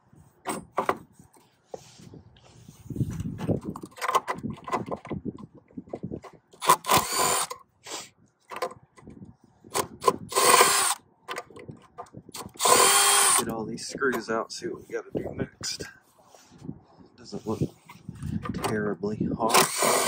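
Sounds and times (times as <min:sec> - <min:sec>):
handling clicks and knocks: 0:03.1 - 0:06.6, 0:08.4 - 0:09.2, 0:11.2 - 0:12.2
cordless drill running: 0:06.6 - 0:07.5, 0:10.3 - 0:11.0, 0:12.4 - 0:13.4, 0:19.5 - 0:20.0.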